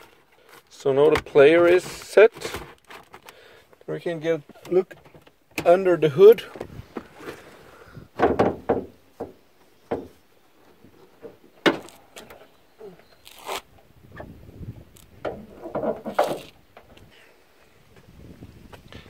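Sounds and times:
car hood catch clicking and scraping: 0:15.0 - 0:17.0.

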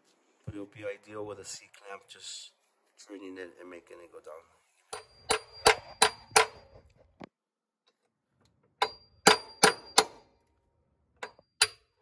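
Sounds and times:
hammer tapping on metal: 0:05.0 - 0:06.7, 0:08.8 - 0:10.2.

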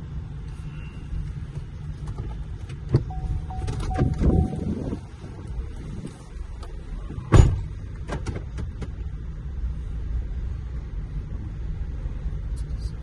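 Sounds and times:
truck engine and road rumble: 0:00.0 - 0:13.0
loud thump: 0:07.3 - 0:08.5.

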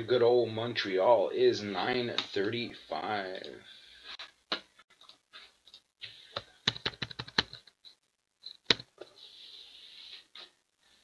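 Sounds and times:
computer keyboard typing: 0:06.6 - 0:07.7, 0:08.7 - 0:08.9.

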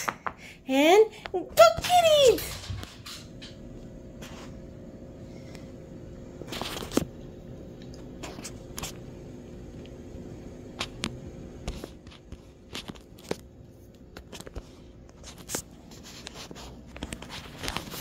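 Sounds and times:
faint steady hum: 0:00.0 - 0:18.0
light crackles and clicks: 0:10.7 - 0:18.0.

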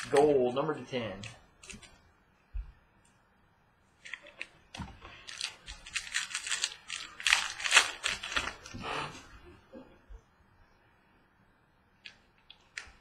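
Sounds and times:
card pack crinkling and rustling: 0:04.0 - 0:08.8.

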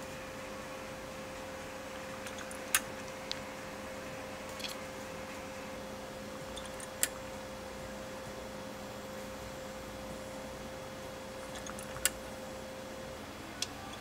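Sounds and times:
chart recorder humming: 0:00.0 - 0:14.0
print mechanism clicks: 0:02.2 - 0:03.4, 0:06.5 - 0:07.2, 0:11.4 - 0:12.2.

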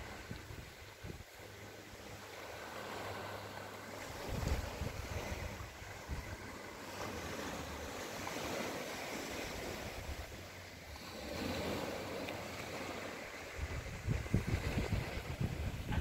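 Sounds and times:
wind buffeting microphone: 0:00.0 - 0:01.3, 0:04.0 - 0:16.0
surf washing onto sand: 0:00.0 - 0:16.0.

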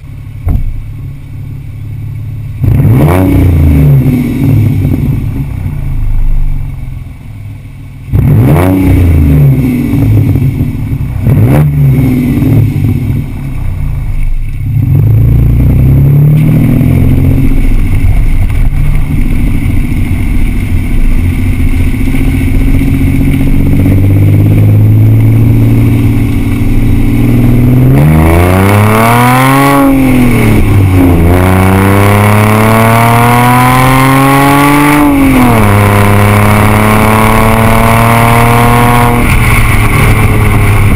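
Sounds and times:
car exhaust revving and accelerating: 0:00.0 - 0:40.9.

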